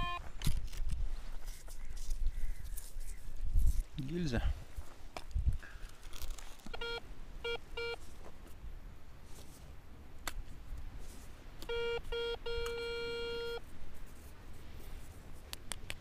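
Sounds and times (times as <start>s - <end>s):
metal detector beeps: 0.0s - 0.3s, 6.7s - 8.0s, 11.6s - 13.6s.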